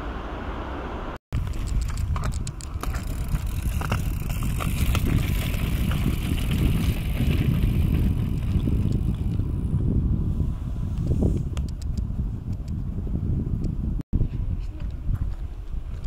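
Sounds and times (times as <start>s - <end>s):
wind and rolling tyres rumble: 0.0s - 16.0s
bike clicks and rattles: 1.4s - 9.9s.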